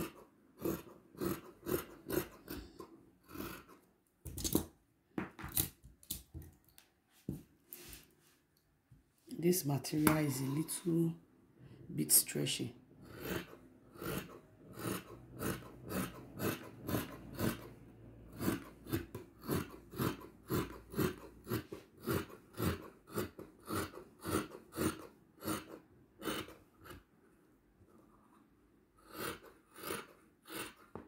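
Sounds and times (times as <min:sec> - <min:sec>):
shears snipping fabric: 0:13.1 - 0:17.7.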